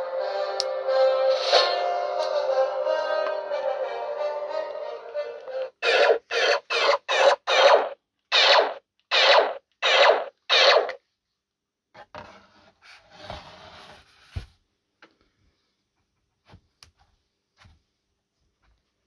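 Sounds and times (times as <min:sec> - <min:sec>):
toy rubbing and scraping: 0:01.3 - 0:01.8, 0:05.7 - 0:11.0
electronic blaster firing effect: 0:05.8 - 0:11.0.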